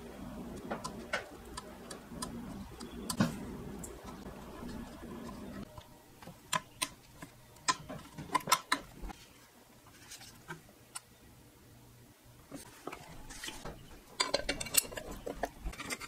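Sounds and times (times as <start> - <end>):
metal and plastic parts clicking: 6.5 - 9.0, 14.2 - 16.0.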